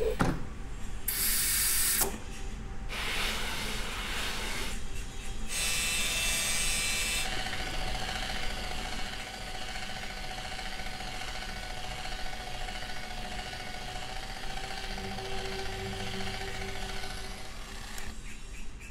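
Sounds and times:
machine hum with whine: 0:04.6 - 0:18.9.

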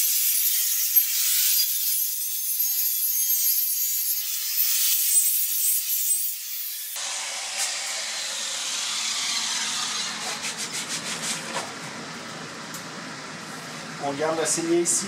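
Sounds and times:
angle grinder grinding steel: 0:00.0 - 0:11.1.

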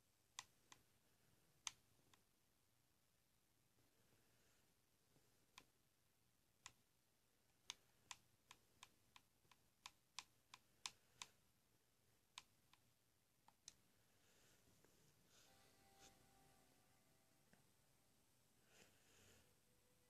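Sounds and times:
computer mouse clicks: 0:06.6 - 0:06.8, 0:07.6 - 0:11.4, 0:12.3 - 0:13.8.

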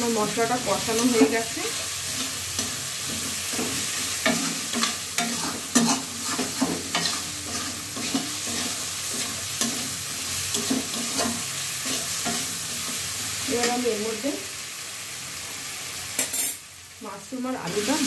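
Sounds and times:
masala sizzling in oil: 0:00.0 - 0:18.0
metal spatula scraping a metal pan: 0:00.9 - 0:13.0.

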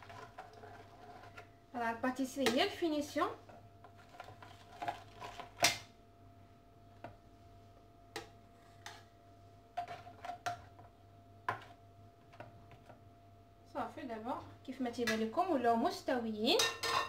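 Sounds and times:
metal spatula scraping molds: 0:00.0 - 0:01.5, 0:03.8 - 0:05.6, 0:08.5 - 0:09.1.

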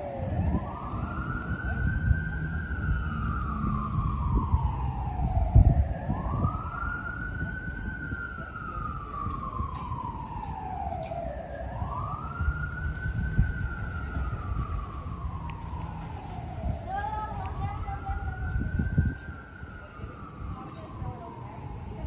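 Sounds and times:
siren wailing: 0:00.0 - 0:22.0.

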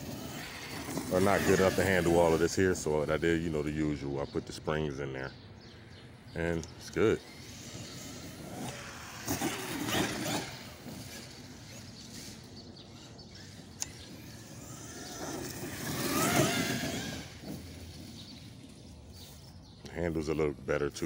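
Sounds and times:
rc truck motor whining: 0:00.0 - 0:03.3, 0:06.6 - 0:19.6.

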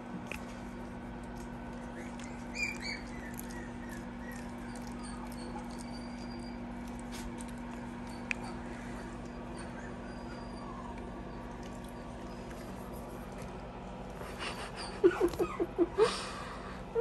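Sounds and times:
steady low hum: 0:00.0 - 0:17.0
puppy squeaking: 0:01.8 - 0:13.5.

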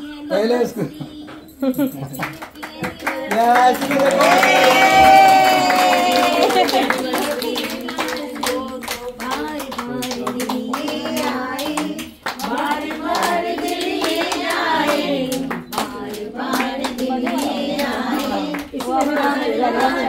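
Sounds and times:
hands clapping: 0:02.1 - 0:20.0
group of people singing: 0:02.4 - 0:20.0.

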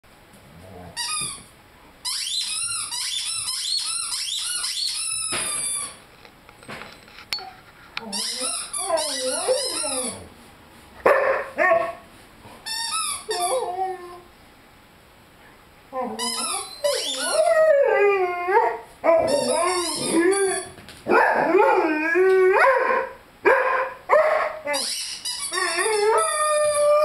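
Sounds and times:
rubber chicken toy squeaking: 0:02.0 - 0:06.0, 0:08.1 - 0:10.1, 0:12.7 - 0:13.5, 0:16.2 - 0:17.3, 0:19.3 - 0:20.6, 0:24.8 - 0:26.4
puppy howling: 0:13.3 - 0:14.3, 0:15.9 - 0:23.2, 0:25.5 - 0:27.0
puppy yelping: 0:18.5 - 0:21.8.

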